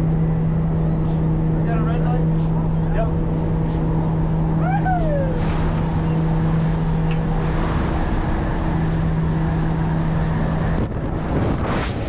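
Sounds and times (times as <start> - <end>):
turboprop engines droning: 0.0 - 12.0
wind rushing: 3.8 - 12.0
person shouting: 4.6 - 5.4.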